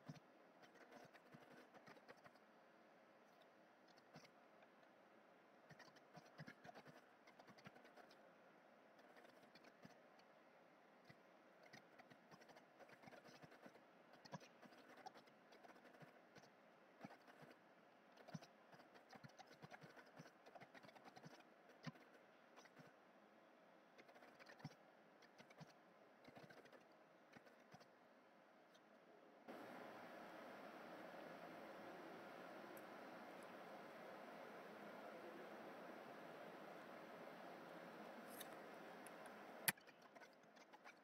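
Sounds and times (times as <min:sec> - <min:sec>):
faint background hiss: 0:27.9 - 0:39.8.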